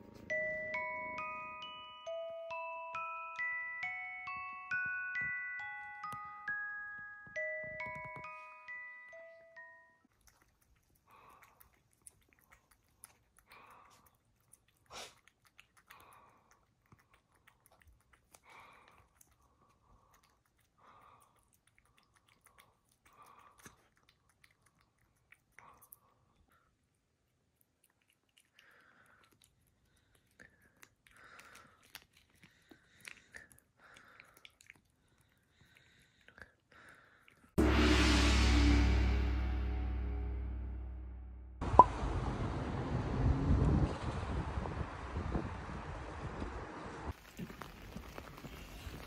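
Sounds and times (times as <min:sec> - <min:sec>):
cat licking wet lapping: 0:10.1 - 0:37.6
short loud noise: 0:37.6 - 0:42.2.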